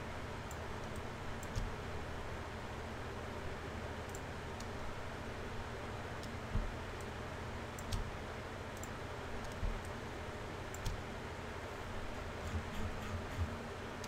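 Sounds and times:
computer mouse clicks: 0.5s - 1.7s, 4.0s - 4.8s, 7.7s - 8.1s, 8.8s - 10.0s, 10.7s - 11.0s.

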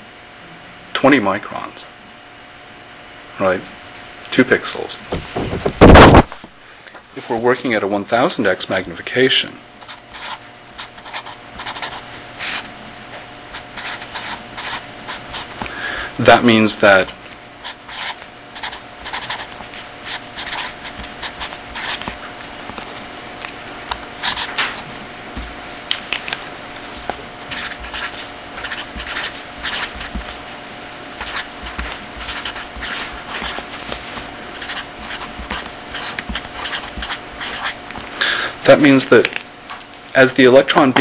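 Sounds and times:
faint steady hum: 0.0s - 41.0s
pen scratching while writing: 9.8s - 12.7s, 13.5s - 15.6s, 17.0s - 22.2s, 24.2s - 24.5s, 27.5s - 30.4s, 31.2s - 37.8s.

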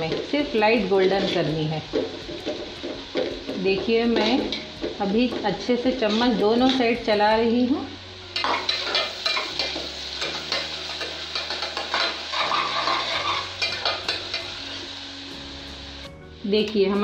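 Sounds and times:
onions sizzling in hot oil: 0.0s - 17.0s
metal spoon scraping: 8.4s - 14.5s.

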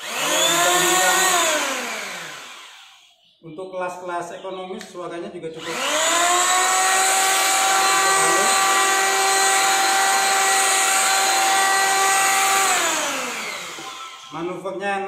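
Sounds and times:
electric hand planer whining: 0.0s - 3.1s, 5.6s - 14.4s.

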